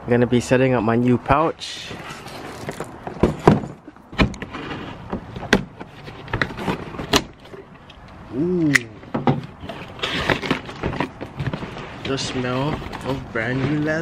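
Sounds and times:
knocks and scrapes of box handling: 0:01.9 - 0:07.7, 0:09.0 - 0:14.0.

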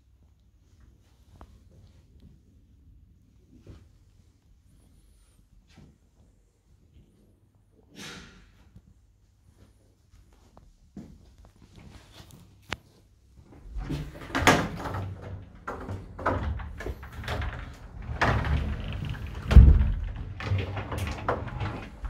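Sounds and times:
wardrobe doors knocking and bumping: 0:13.6 - 0:22.0
heavy thump: 0:19.3 - 0:20.2.

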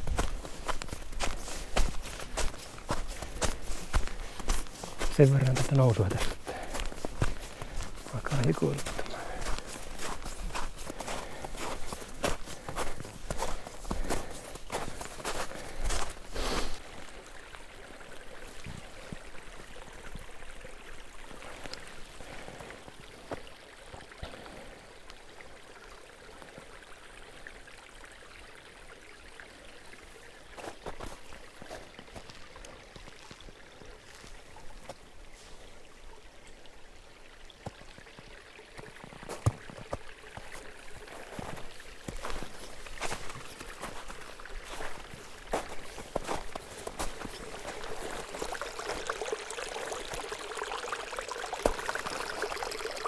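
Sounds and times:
footsteps: 0:00.0 - 0:16.8, 0:39.2 - 0:49.4
forest brook running: 0:00.0 - 0:53.0.

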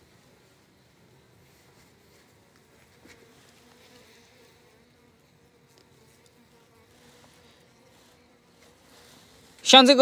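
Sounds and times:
honeybees buzzing: 0:00.0 - 0:10.0.

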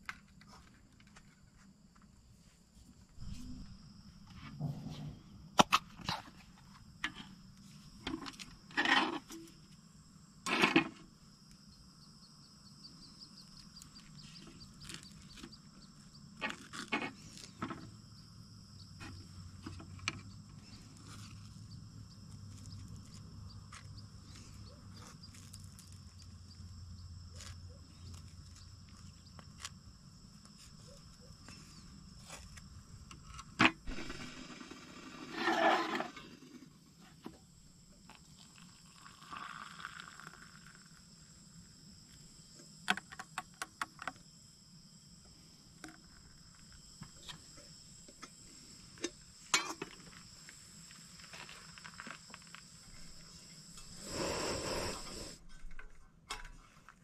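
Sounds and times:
high insect chirring: 0:11.2 - 0:55.4.

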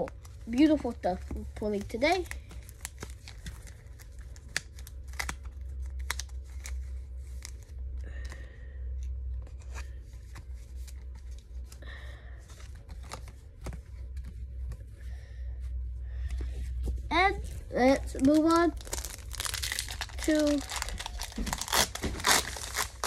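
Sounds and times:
wrapper rustling: 0:17.7 - 0:23.0.

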